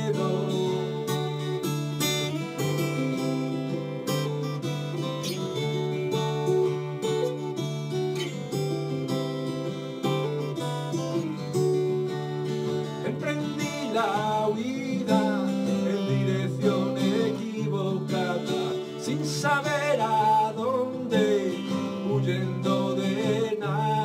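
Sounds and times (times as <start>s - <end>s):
man singing: 0.0s - 1.3s, 13.0s - 24.0s
acoustic guitars playing chords: 0.0s - 24.0s.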